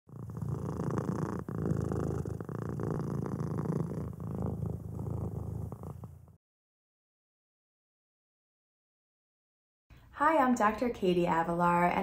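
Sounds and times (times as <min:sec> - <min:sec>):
cat purring: 0:00.1 - 0:06.4.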